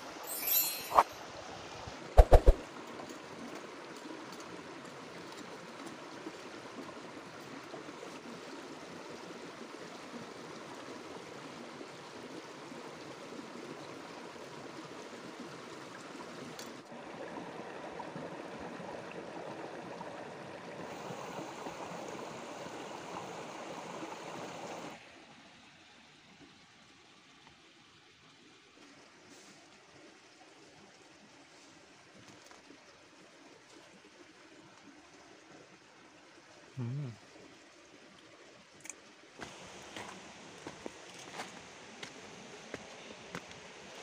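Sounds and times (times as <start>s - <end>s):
stream flowing over rocks: 0.0s - 44.0s.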